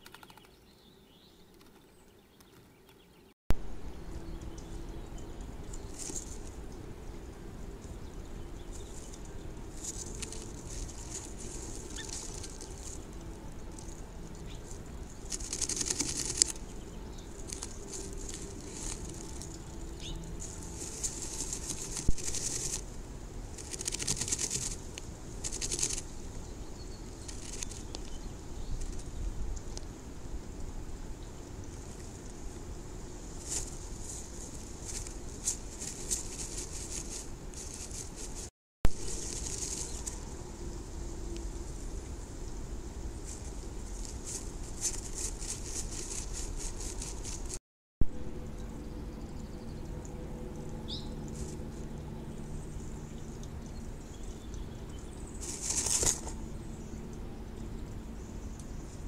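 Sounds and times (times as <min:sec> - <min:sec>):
low background noise: 0:00.0 - 0:59.0
steady low hum: 0:03.6 - 0:59.0
bird rustling in dry grass nest: 0:05.8 - 0:06.6, 0:08.7 - 0:16.7, 0:17.3 - 0:19.7, 0:20.3 - 0:26.1, 0:27.2 - 0:28.0, 0:33.3 - 0:40.4, 0:43.1 - 0:47.6, 0:55.4 - 0:56.4.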